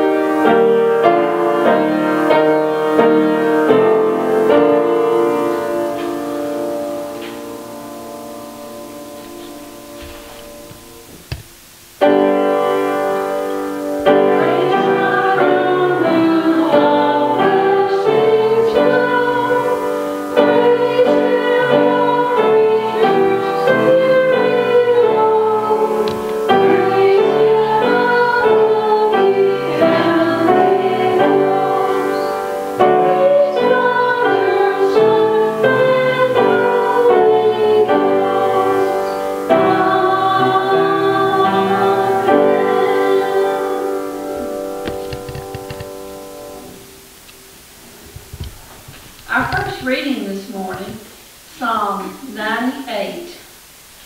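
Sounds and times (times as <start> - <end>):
piano accompaniment: 0.0 - 51.2
woman singing slow song: 14.1 - 44.8.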